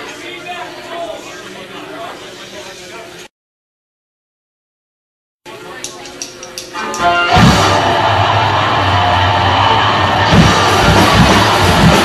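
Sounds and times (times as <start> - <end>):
drum hits: 7.0 - 8.2, 10.0 - 12.0
distorted guitars and bass: 7.1 - 12.0.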